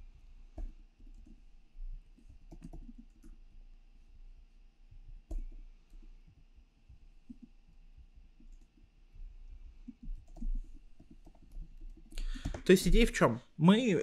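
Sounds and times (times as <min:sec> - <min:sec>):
computer keyboard typing: 0:00.6 - 0:01.4, 0:02.2 - 0:03.4, 0:08.4 - 0:08.8, 0:09.8 - 0:12.9.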